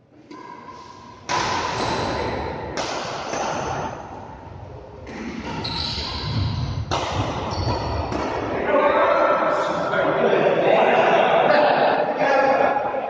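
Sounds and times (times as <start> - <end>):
rackets hitting shuttlecock: 0.2 - 4.2, 5.0 - 8.6.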